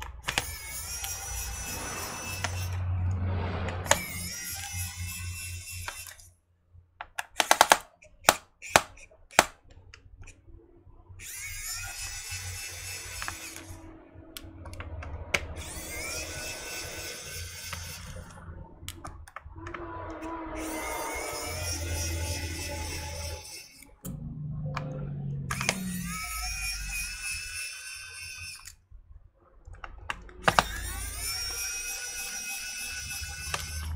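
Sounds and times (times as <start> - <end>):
electric screwdriver whirring: 0.0 - 2.8, 3.7 - 6.3, 7.2 - 9.6, 11.2 - 24.1, 25.5 - 28.8, 30.1 - 33.9
sharp clicks: 7.0 - 10.4.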